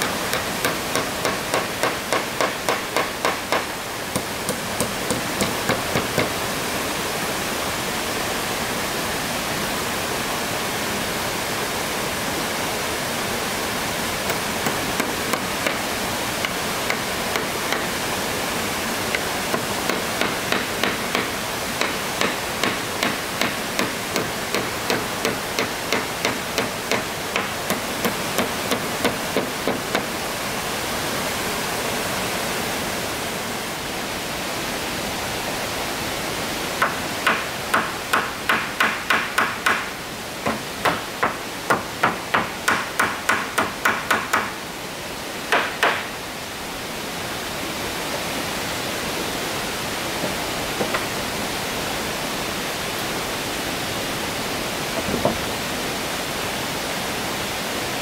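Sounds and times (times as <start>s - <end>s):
hammer blows on wooden boards: 0.0s - 6.4s, 14.3s - 18.0s, 19.1s - 30.1s, 36.8s - 44.6s, 45.5s - 46.1s
stream rushing: 0.0s - 58.0s.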